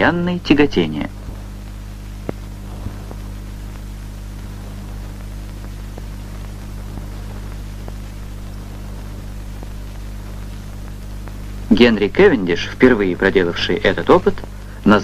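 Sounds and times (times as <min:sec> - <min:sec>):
film soundtrack hum and hiss: 0:00.0 - 0:15.0
faint clicks: 0:01.2 - 0:11.7.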